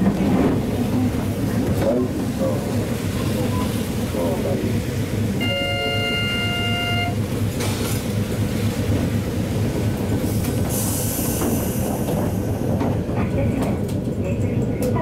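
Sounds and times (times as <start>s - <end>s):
tram motor and wheels rumbling: 0.0s - 15.0s
hiss: 10.3s - 12.6s.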